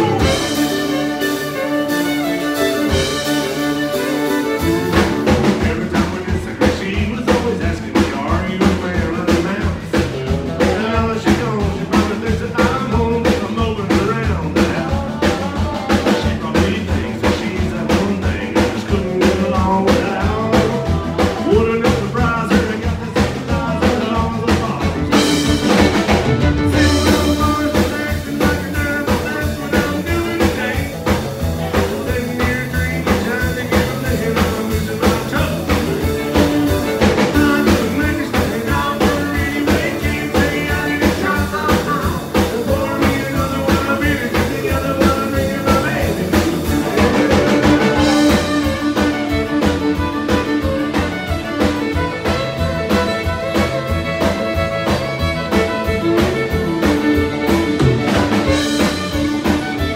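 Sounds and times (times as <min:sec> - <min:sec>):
country band playing: 0:00.0 - 0:59.9
fiddle: 0:00.0 - 0:59.9
woman singing: 0:10.6 - 0:25.0.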